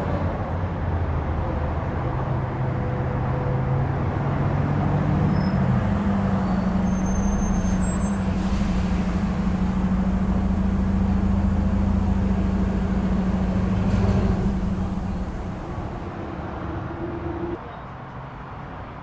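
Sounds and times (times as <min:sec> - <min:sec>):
low engine hum: 0:00.0 - 0:17.6
freeway traffic rush: 0:00.0 - 0:19.0
high-pitched squeals: 0:05.3 - 0:16.1.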